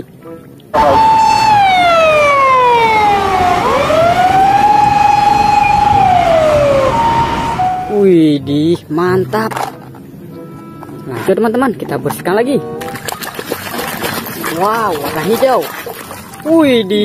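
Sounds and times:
siren wailing: 0.8s - 8.0s.

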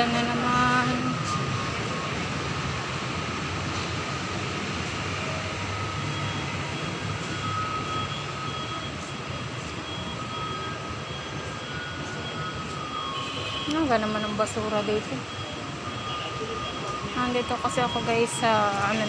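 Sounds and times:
rumble of vehicle engines: 0.0s - 19.0s.

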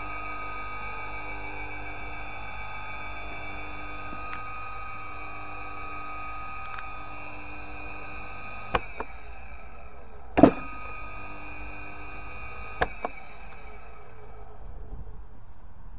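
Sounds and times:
electric motor humming and whining: 0.0s - 15.9s
contactor clunk: 10.3s - 11.0s.

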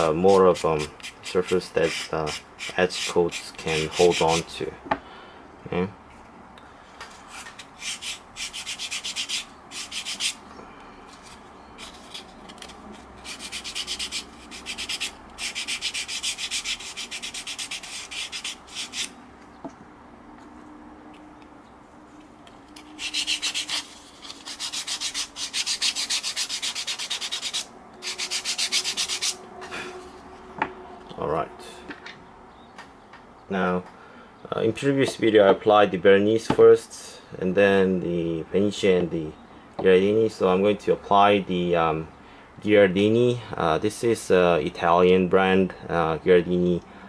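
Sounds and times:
sandpaper rubbing on leather: 0.0s - 4.4s, 7.8s - 10.4s, 13.2s - 19.1s, 23.0s - 29.4s.

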